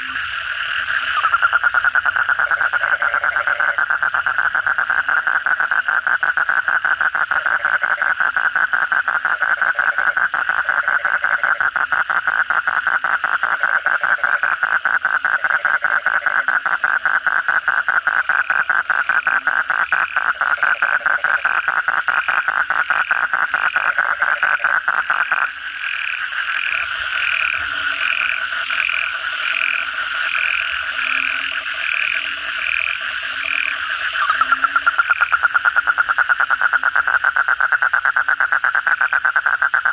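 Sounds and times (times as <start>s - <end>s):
frogs calling: 0.0s - 39.9s
low frog croaks: 0.0s - 39.9s
toad trilling: 0.0s - 39.9s.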